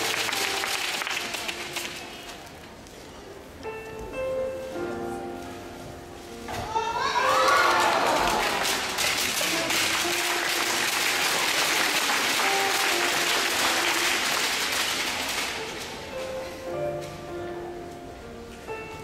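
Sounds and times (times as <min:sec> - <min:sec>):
audience applauding: 0:00.0 - 0:02.2, 0:07.3 - 0:16.0
instrumental music: 0:09.1 - 0:19.0.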